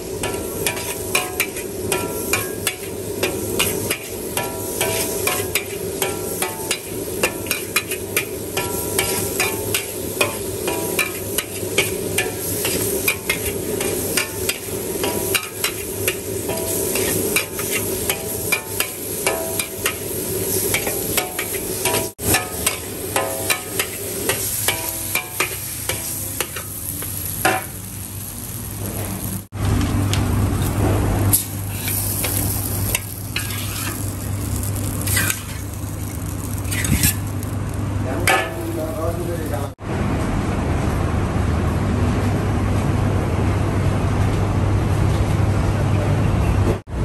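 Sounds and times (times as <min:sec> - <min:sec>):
noodles sizzling: 0:00.0 - 0:39.8
spatula scraping metal wok: 0:00.1 - 0:26.8, 0:31.3 - 0:34.3, 0:35.0 - 0:37.4.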